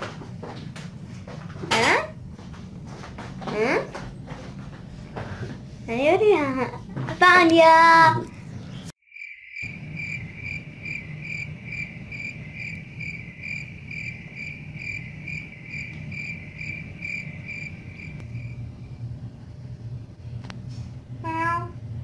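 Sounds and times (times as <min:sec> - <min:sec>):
low room hum: 0:00.0 - 0:08.9, 0:09.6 - 0:22.0
cricket chirping: 0:09.0 - 0:19.0.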